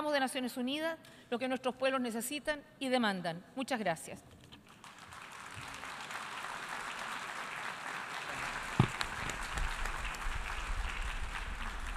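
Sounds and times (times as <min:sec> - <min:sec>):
audience applause: 0:04.8 - 0:11.9
thump: 0:08.8 - 0:09.3.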